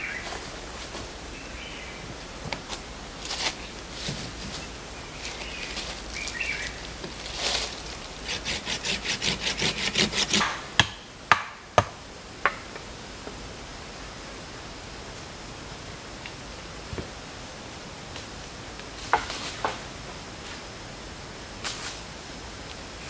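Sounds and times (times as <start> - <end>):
rustling in dry leaves: 0.0 - 10.7, 14.0 - 23.0
saw cutting wooden log: 7.3 - 11.4
sharp wooden knocks: 8.6 - 12.8.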